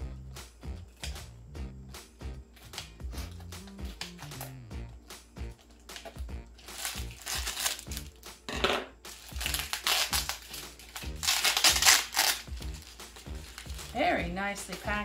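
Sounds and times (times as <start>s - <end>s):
background music: 0.0s - 15.0s
paper and plastic crinkling: 5.9s - 8.1s, 9.1s - 15.0s.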